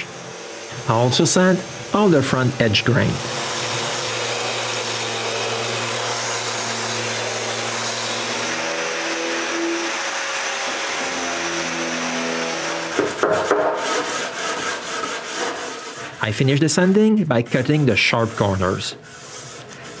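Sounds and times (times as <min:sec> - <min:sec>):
electric sander whirring: 0:00.0 - 0:13.1
knocks: 0:13.0 - 0:13.8.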